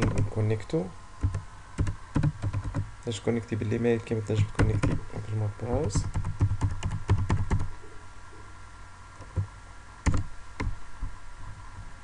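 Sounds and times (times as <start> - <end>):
computer keyboard typing: 0.0 - 0.3, 1.2 - 2.9, 4.4 - 5.0, 5.7 - 7.7, 9.2 - 10.7.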